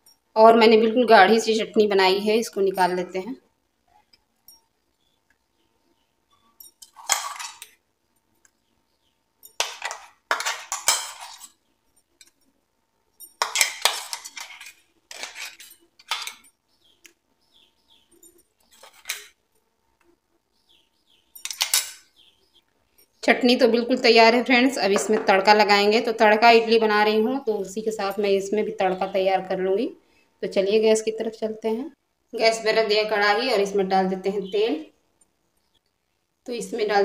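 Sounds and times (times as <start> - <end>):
spoon scraping a jar: 6.4 - 7.8, 9.5 - 12.4, 13.2 - 16.6, 17.9 - 19.4.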